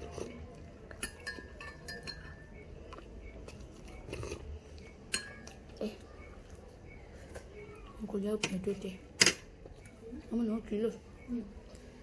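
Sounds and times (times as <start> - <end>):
metal spoon clinking against mug: 0.9 - 2.6, 5.1 - 5.6.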